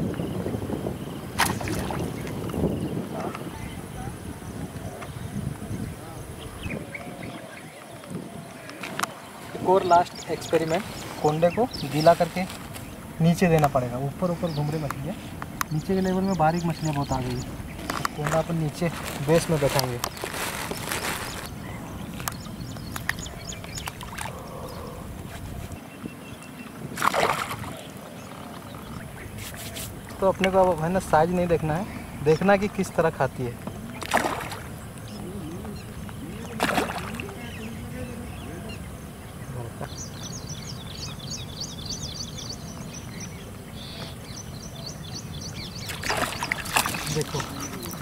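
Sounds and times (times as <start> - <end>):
small birds chirping: 0.0 - 48.0
splash in pond water: 1.3 - 2.4, 23.8 - 24.4, 26.9 - 28.0, 34.0 - 34.8, 36.5 - 37.4, 45.8 - 48.0.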